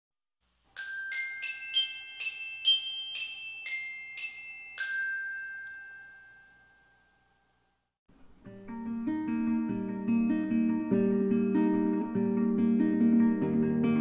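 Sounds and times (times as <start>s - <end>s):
glockenspiel chiming jingle: 0.7s - 7.8s.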